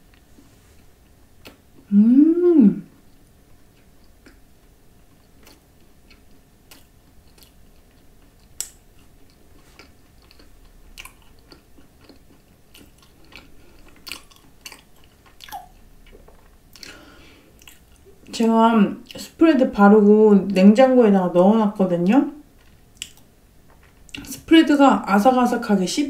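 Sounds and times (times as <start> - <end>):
person chewing with crunches: 0.0 - 1.9, 2.9 - 18.4, 22.5 - 24.4
person humming: 1.8 - 2.9.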